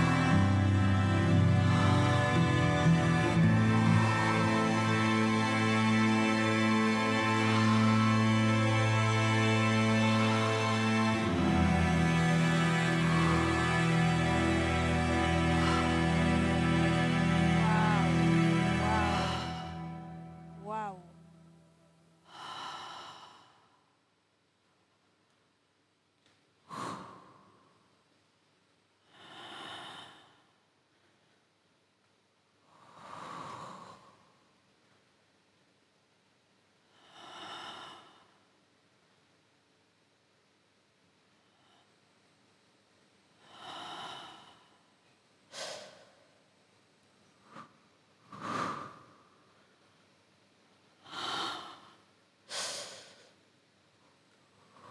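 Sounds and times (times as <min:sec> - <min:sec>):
person breathing: 0:00.0 - 0:06.4, 0:09.0 - 0:21.2, 0:22.2 - 0:23.9, 0:26.6 - 0:27.9, 0:29.0 - 0:31.3, 0:32.6 - 0:34.5, 0:36.9 - 0:38.5, 0:41.4 - 0:42.1, 0:43.4 - 0:46.4, 0:47.4 - 0:49.6, 0:51.0 - 0:53.4, 0:54.5 - 0:54.9
faint hiss: 0:17.5 - 0:54.9
short breaths like sighs: 0:22.2 - 0:23.8, 0:45.5 - 0:46.3, 0:51.0 - 0:53.4.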